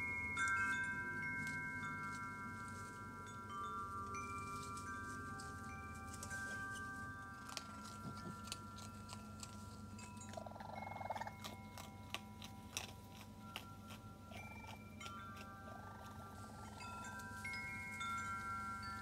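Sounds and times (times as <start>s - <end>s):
wind chimes ringing: 0.0s - 19.0s
raccoons crunching kibble: 4.4s - 19.0s.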